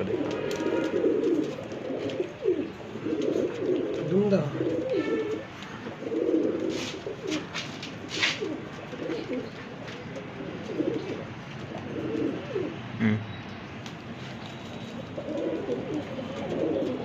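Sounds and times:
pigeons cooing: 0:00.0 - 0:13.4, 0:14.2 - 0:17.0.

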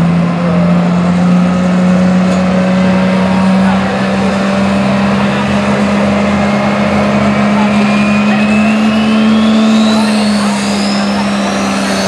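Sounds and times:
diesel truck engine running: 0:00.0 - 0:12.0
turbocharger whistle: 0:03.0 - 0:12.0.

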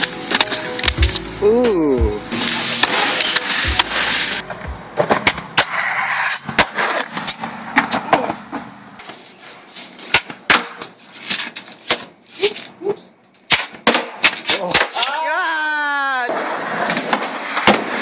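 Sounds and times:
skateboard wheels rolling: 0:02.4 - 0:12.7, 0:16.0 - 0:18.0.

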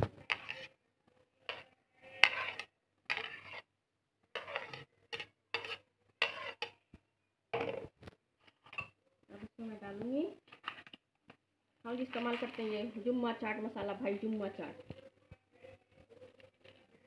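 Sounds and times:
steel spoon scraping plate: 0:00.3 - 0:00.8, 0:01.5 - 0:03.7, 0:04.3 - 0:06.8.

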